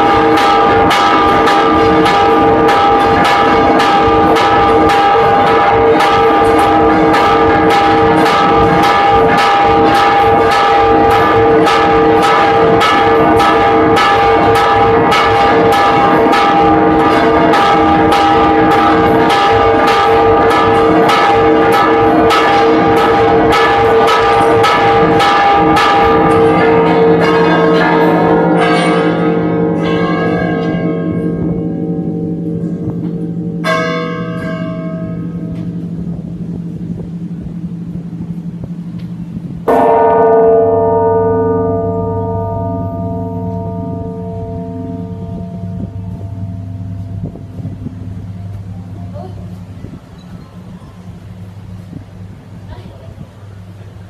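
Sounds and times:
church bells ringing: 0.0s - 54.0s.

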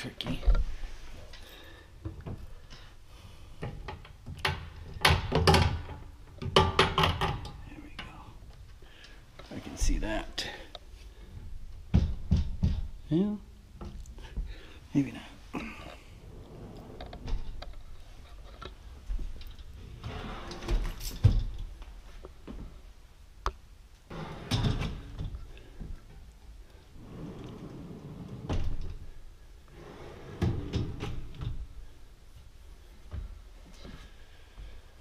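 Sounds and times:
cabinet unit knocks and clunks: 11.9s - 13.0s.

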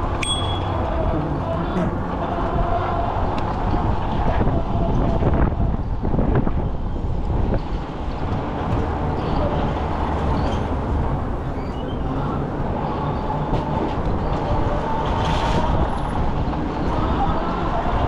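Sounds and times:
passing vehicles rumble: 0.0s - 18.0s
faint high squeaks: 10.3s - 10.7s, 11.5s - 12.2s.

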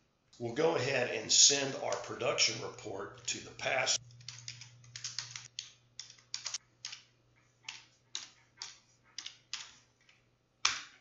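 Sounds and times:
keyboard keystrokes: 4.1s - 9.8s.

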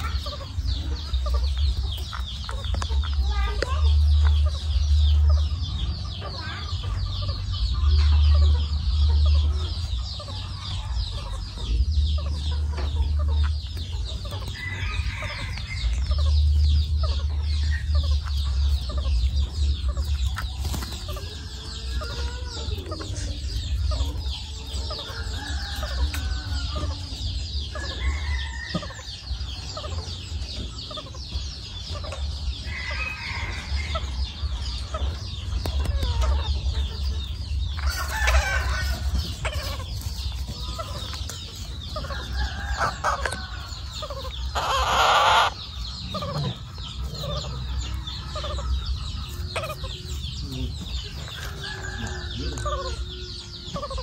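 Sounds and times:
baby parakeets chattering: 0.0s - 54.0s
parakeet squawks: 44.5s - 45.6s.

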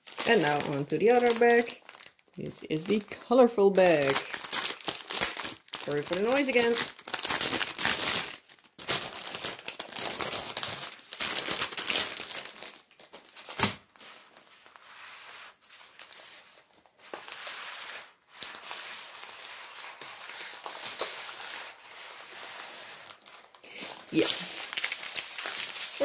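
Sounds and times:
plastic bags crinkling: 0.0s - 14.8s, 15.6s - 26.0s.

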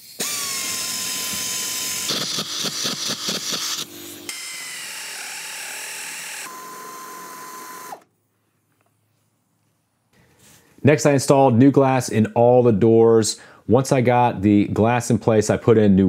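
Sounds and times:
power driver whining: 0.1s - 8.1s.

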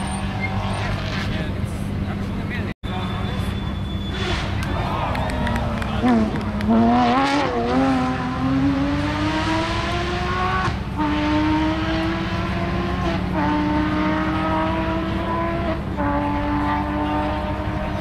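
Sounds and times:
car engine accelerating hard: 4.0s - 18.0s.

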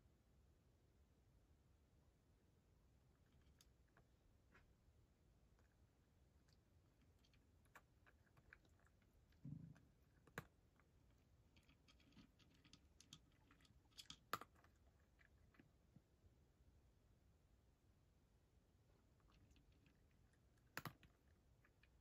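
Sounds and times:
cat chewing crunchy food: 3.1s - 4.7s, 5.4s - 16.0s, 19.0s - 22.0s.

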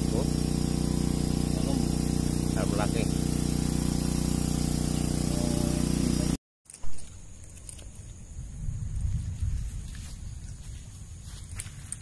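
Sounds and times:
engine humming: 0.0s - 6.4s
outdoor background: 0.0s - 12.0s.

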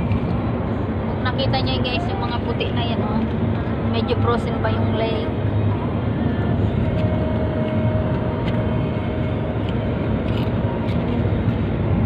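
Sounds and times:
car road and engine noise: 0.0s - 12.0s.

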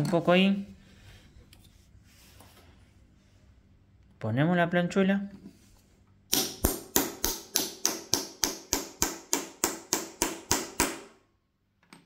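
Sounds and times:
hammer tapping steel bar: 6.3s - 11.1s.

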